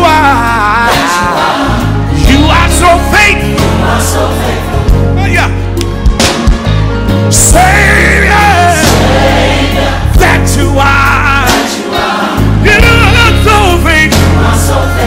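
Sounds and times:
band with steady bass line: 0.0s - 15.0s
choir singing: 0.2s - 2.3s, 3.3s - 5.2s, 7.5s - 15.0s.

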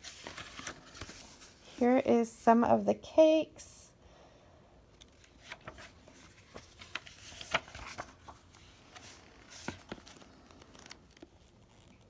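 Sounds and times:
book pages rustling: 0.0s - 1.8s, 5.0s - 12.0s.

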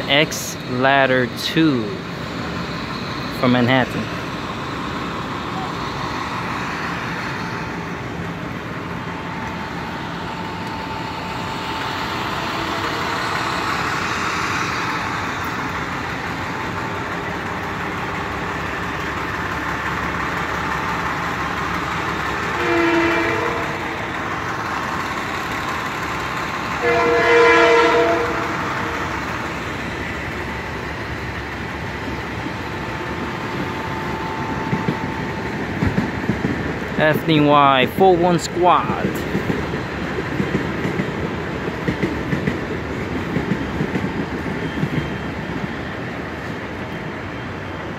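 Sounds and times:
idling engines and traffic: 0.0s - 47.9s
multi-tone horn blasts: 22.6s - 23.9s, 26.8s - 29.0s.

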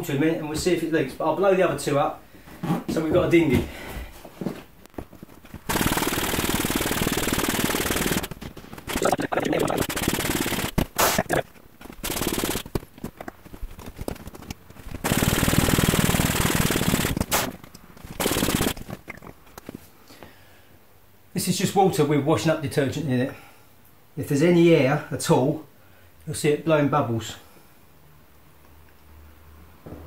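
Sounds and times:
electric air pump blowing: 5.7s - 12.8s, 14.0s - 18.9s.

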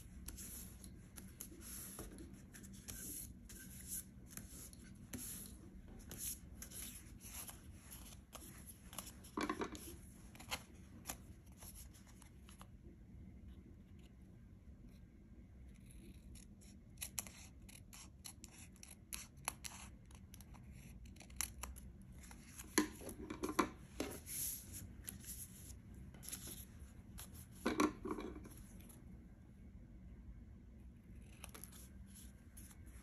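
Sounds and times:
scissors snipping paper: 16.2s - 21.9s.

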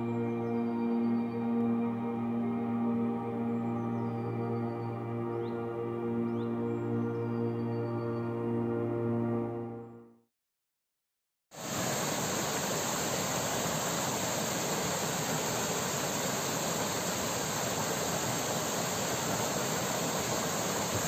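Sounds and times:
river water rushing over rocks: 11.6s - 21.0s.

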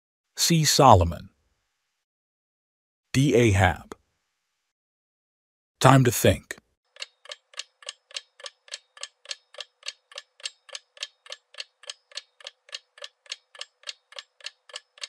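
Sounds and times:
clock ticking: 6.9s - 15.0s.

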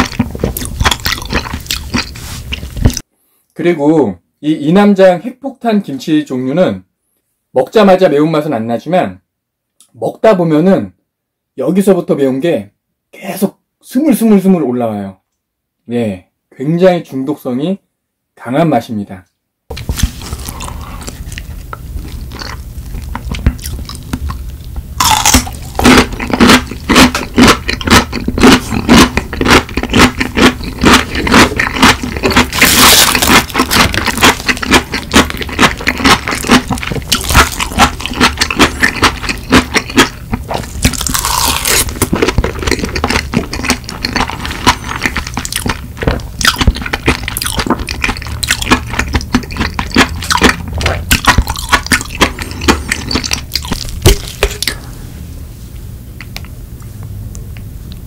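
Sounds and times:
crunching on crisp radish: 0.0s - 3.0s, 19.7s - 55.0s.

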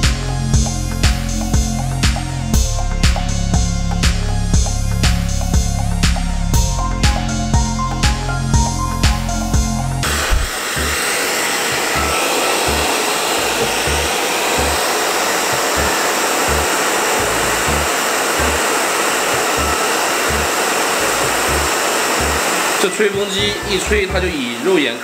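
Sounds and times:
electronic background music: 0.0s - 25.0s
hair dryer blowing: 6.9s - 25.0s.

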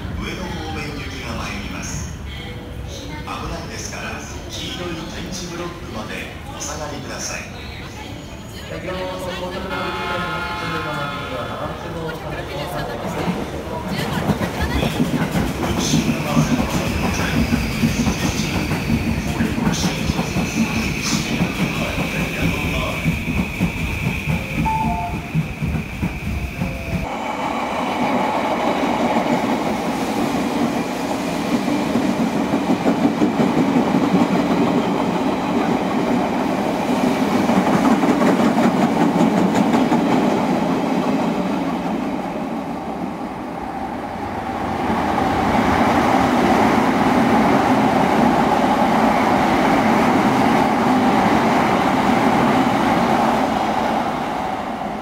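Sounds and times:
train wheels clattering on rails: 13.1s - 27.1s.

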